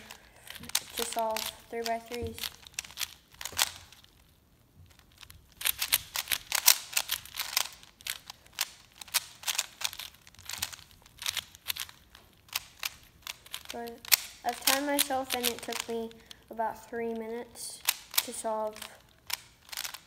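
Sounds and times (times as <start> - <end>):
puzzle cubes clicking: 0.0 - 4.2, 4.9 - 20.0.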